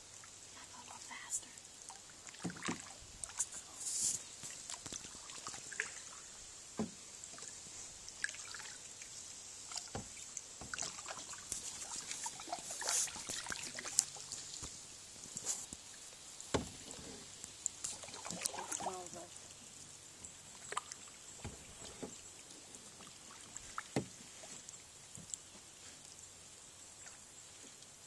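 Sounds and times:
faint high hiss: 0:00.0 - 0:28.0
hull and paddle knocks: 0:06.8 - 0:07.0, 0:16.5 - 0:17.0.

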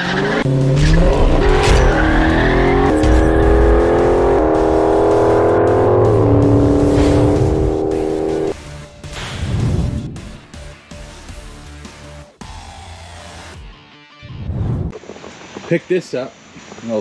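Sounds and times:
car engine revving: 0:00.0 - 0:08.6.

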